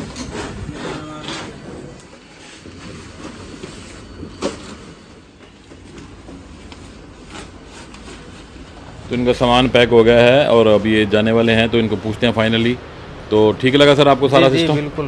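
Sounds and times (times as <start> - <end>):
cardboard rustling and scraping: 0.0 - 9.0
cardboard crackle: 5.8 - 8.9.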